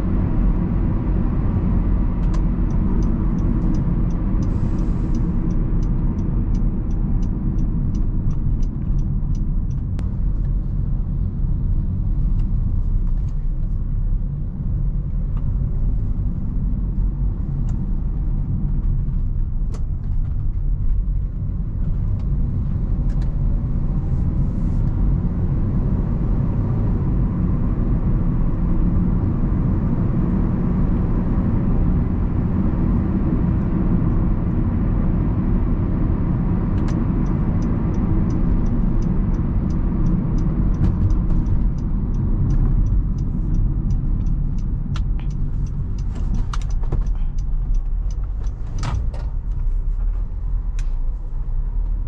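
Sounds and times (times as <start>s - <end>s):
car engine and road noise: 0.0s - 52.0s
scattered clicks: 2.2s - 10.1s, 36.7s - 49.2s
regular ticking: 36.9s - 49.0s.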